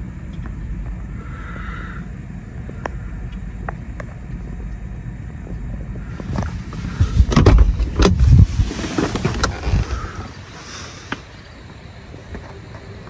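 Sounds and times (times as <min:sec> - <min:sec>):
wind buffeting microphone: 0:00.0 - 0:12.3
tyres rumbling on wet road: 0:06.1 - 0:11.2.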